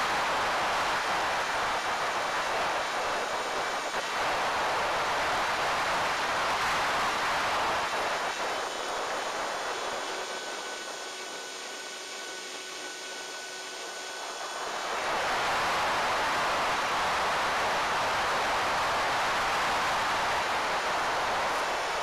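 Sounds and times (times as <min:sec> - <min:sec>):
wind rushing over camera: 0:00.0 - 0:11.0, 0:14.0 - 0:22.0
faint steady whining tones: 0:00.0 - 0:22.0.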